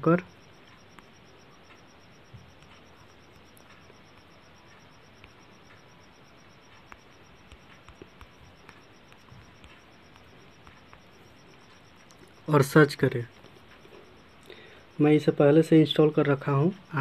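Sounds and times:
background hiss: 0.0s - 17.0s
insect trill: 0.0s - 17.0s
typing on phone screen: 0.0s - 17.0s.

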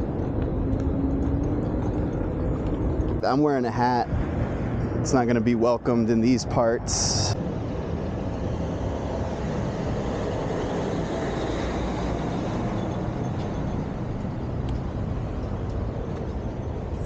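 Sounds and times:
scooter wheels rumbling on bricks: 0.0s - 3.4s.

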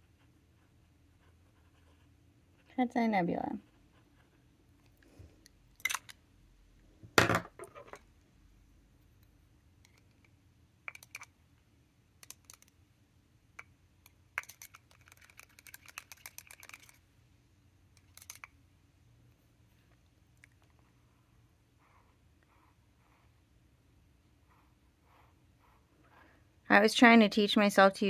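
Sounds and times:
small objects clicking on a desk: 9.8s - 11.4s, 12.2s - 12.8s, 13.5s - 17.0s, 17.9s - 18.6s.

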